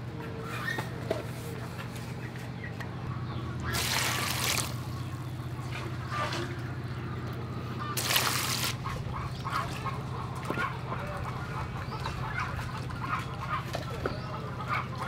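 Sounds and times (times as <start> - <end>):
water sloshing and splashing in a bowl: 3.6 - 5.0, 7.9 - 14.2.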